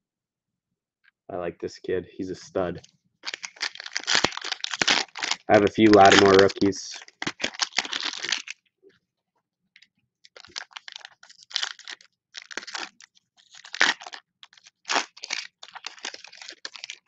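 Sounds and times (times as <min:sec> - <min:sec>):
foil wrapper crinkling and tearing: 0:03.2 - 0:08.6, 0:10.3 - 0:17.0.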